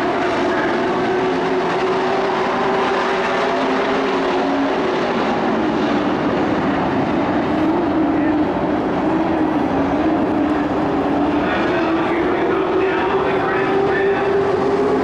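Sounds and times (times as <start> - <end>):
racing truck engines: 0.0 - 15.0.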